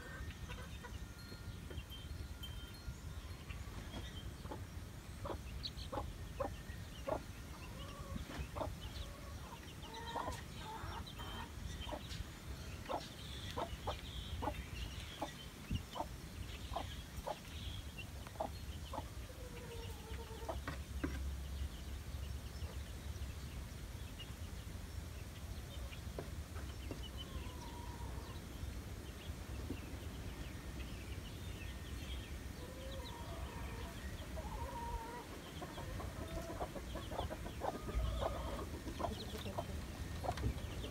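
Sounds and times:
chicks peeping: 0:00.0 - 0:02.0, 0:03.3 - 0:40.9
hen clucking softly: 0:32.6 - 0:40.5.

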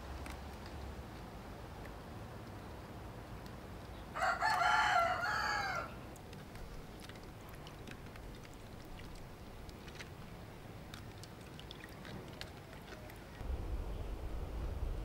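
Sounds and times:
rooster crowing: 0:04.2 - 0:06.0.

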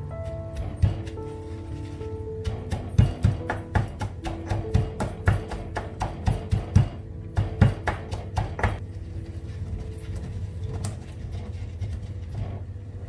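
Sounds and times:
background music with held notes: 0:00.0 - 0:13.0
pestle pounding in stone mortar: 0:00.2 - 0:01.3, 0:02.4 - 0:08.8.

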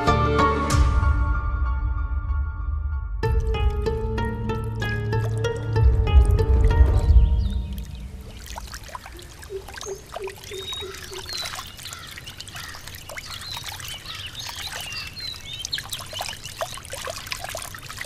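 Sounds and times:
stream trickling and splashing: 0:03.2 - 0:18.0
birds chirping: 0:04.2 - 0:16.9.

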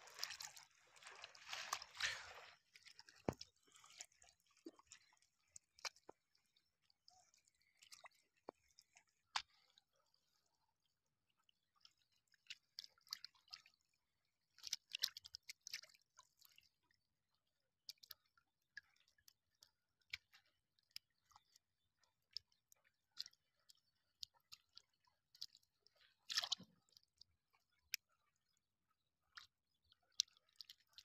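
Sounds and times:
wet squelches in mud: 0:00.1 - 0:05.2, 0:23.1 - 0:26.7.

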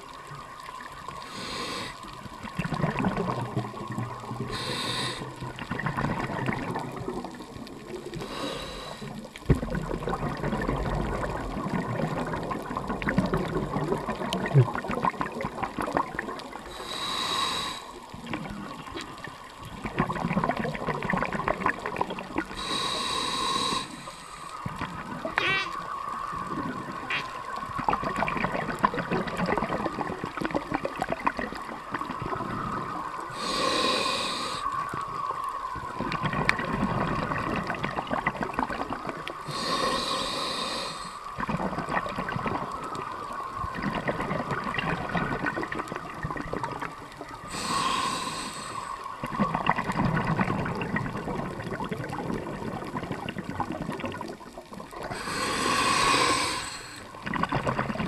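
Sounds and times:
hissing regulator inhalations: 0:01.2 - 0:02.0, 0:04.5 - 0:05.4, 0:08.2 - 0:09.2, 0:16.7 - 0:18.0, 0:22.6 - 0:24.6, 0:33.3 - 0:34.9, 0:39.5 - 0:41.3, 0:47.5 - 0:49.2, 0:55.1 - 0:57.2
bubbling exhalations underwater: 0:02.3 - 0:08.5, 0:09.1 - 0:16.7, 0:18.1 - 0:23.0, 0:24.6 - 0:34.2, 0:35.9 - 0:40.5, 0:41.4 - 0:58.0.

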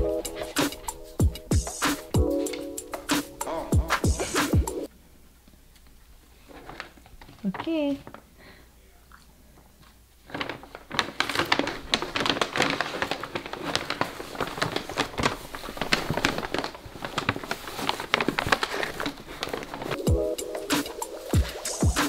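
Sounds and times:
paper bag rustling: 0:00.0 - 0:04.5, 0:09.8 - 0:22.0.

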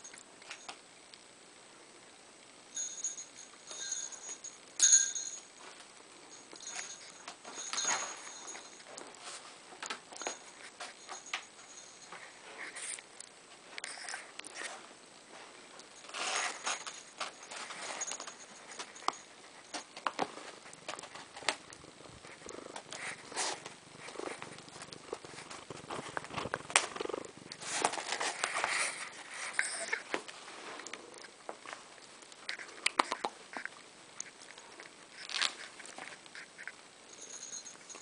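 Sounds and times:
jingle bells jingling: 0:02.7 - 0:05.7, 0:06.3 - 0:09.0, 0:10.2 - 0:12.2, 0:37.1 - 0:38.0.

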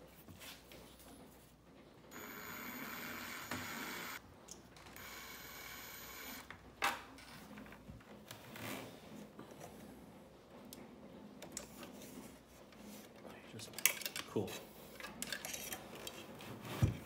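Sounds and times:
cordless drill whining: 0:02.1 - 0:04.2, 0:05.0 - 0:06.5.

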